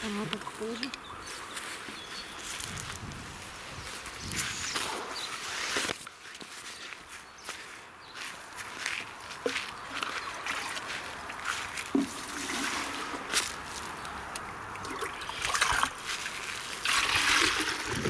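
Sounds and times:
water pouring onto soil: 10.0s - 13.9s, 14.8s - 18.0s.

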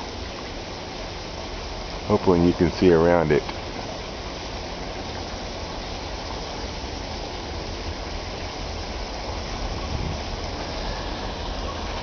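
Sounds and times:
even hiss: 0.0s - 12.0s
low fluctuating rumble: 3.6s - 12.0s.

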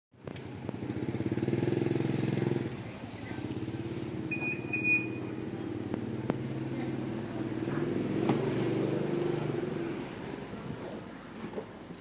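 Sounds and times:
high-pitched beep: 4.3s - 5.3s.

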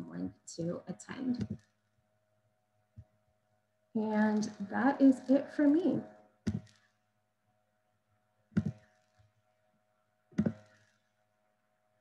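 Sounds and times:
faint electrical hum: 0.0s - 12.0s.

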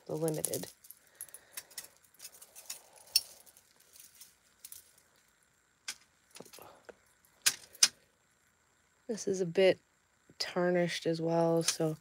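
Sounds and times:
metal chains and beads clinking: 0.0s - 5.0s.

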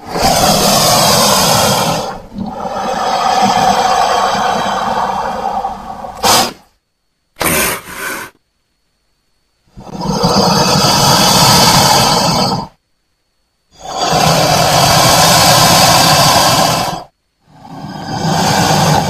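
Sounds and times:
crocodile calls: 0.0s - 6.6s, 9.7s - 12.8s, 13.8s - 19.0s.

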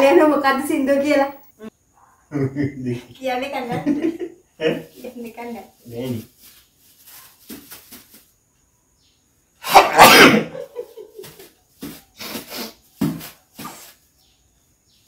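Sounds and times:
person sneezing: 9.6s - 10.6s, 12.2s - 12.8s.

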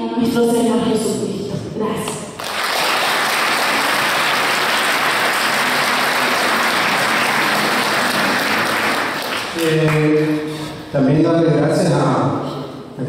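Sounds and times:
audience applauding: 2.4s - 10.6s.

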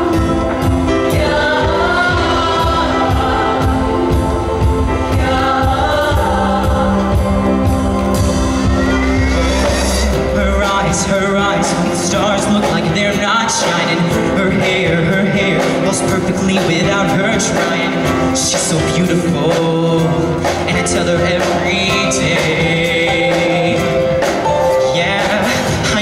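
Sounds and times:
choir singing: 0.0s - 15.4s
band playing: 0.0s - 26.0s
man singing solo: 9.0s - 26.0s.

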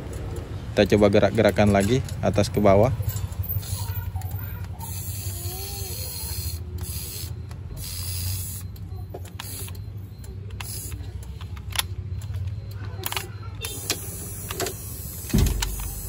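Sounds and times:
power window motor whirring: 13.6s - 16.0s.

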